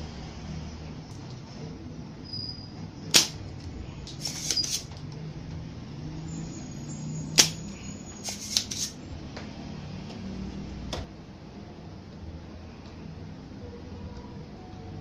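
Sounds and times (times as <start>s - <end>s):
desoldering pump snap: 3.1s - 3.4s, 7.4s - 7.6s.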